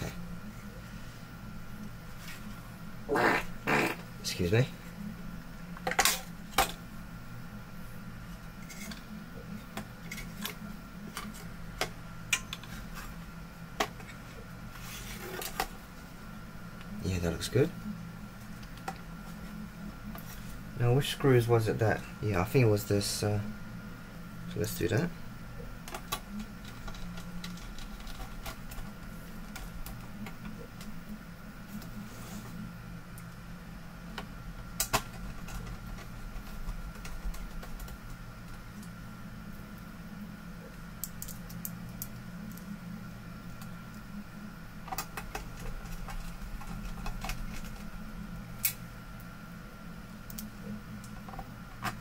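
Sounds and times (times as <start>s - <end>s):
steady low hum: 0.0s - 52.0s.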